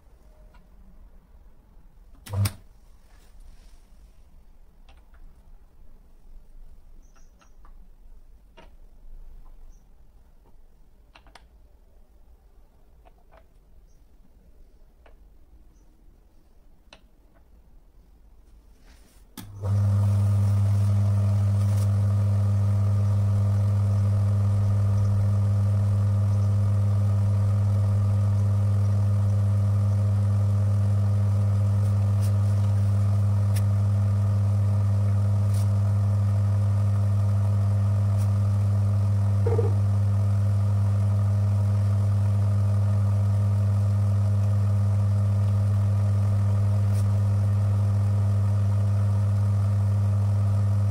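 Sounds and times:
electric motor humming: 19.4s - 50.9s.

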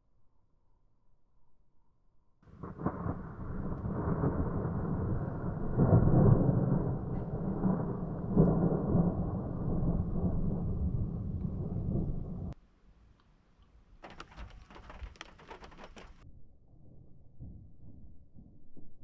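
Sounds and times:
distant thunder rumbling: 2.5s - 12.6s.

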